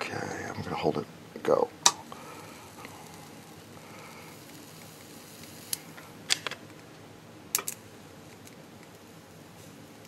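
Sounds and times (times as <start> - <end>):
low steady background hum: 0.0 - 10.0
soldering clicks: 4.3 - 6.6.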